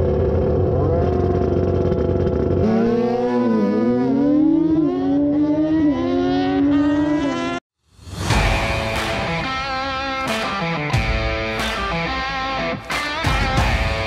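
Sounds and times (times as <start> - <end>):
motorcycle engine revving hard: 0.0 - 7.6.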